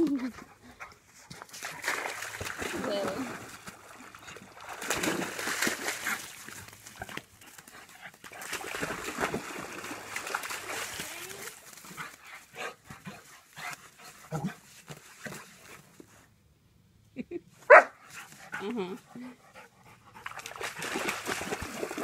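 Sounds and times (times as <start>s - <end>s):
dog rolling in wet sand: 0.2s - 15.9s, 20.2s - 22.0s
dog splashing in water: 1.3s - 12.3s, 20.2s - 22.0s.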